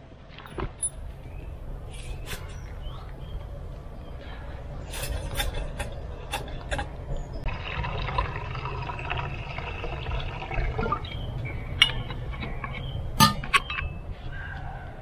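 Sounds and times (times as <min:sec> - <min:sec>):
water pouring into metal cup: 0:07.5 - 0:11.0
metal cups clinking: 0:11.8 - 0:12.2, 0:13.2 - 0:13.9.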